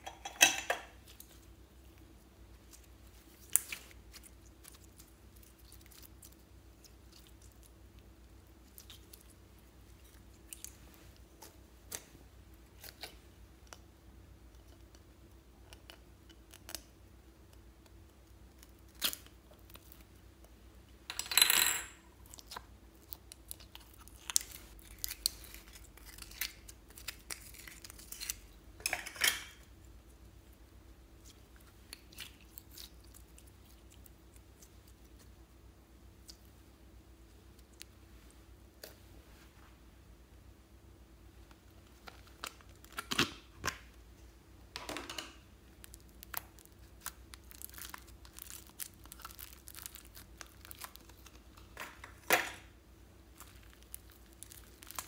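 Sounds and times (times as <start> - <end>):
slime clicking and crackling: 2.6 - 10.8, 45.8 - 51.7, 53.3 - 55.0.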